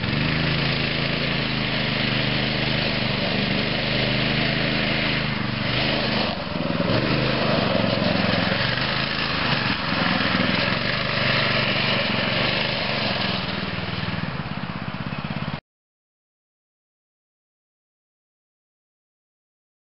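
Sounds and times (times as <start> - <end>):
go-kart engine running: 0.0 - 15.6.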